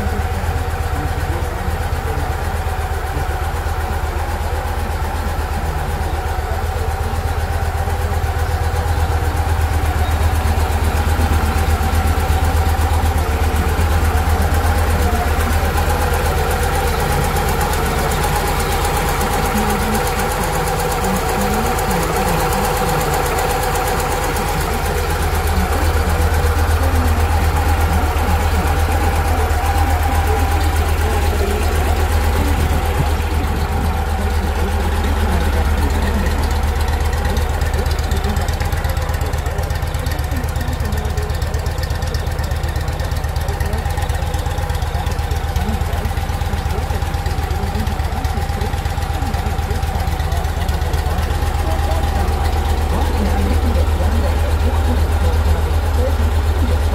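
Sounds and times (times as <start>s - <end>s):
motorcycle engine idling: 0.0s - 56.9s.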